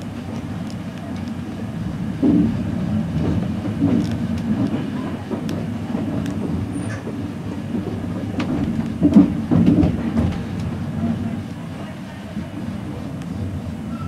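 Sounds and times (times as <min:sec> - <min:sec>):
train carriage rumble: 0:00.0 - 0:14.0.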